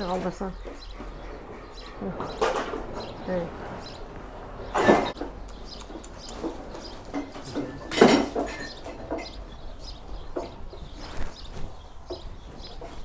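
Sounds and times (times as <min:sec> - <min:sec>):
dishes clinking and knocking: 0:06.4 - 0:09.5
dishes clattering: 0:06.5 - 0:09.5.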